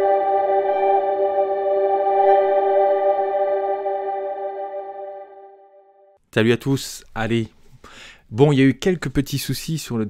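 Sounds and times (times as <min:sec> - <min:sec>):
ambient held chord: 0:00.0 - 0:06.2.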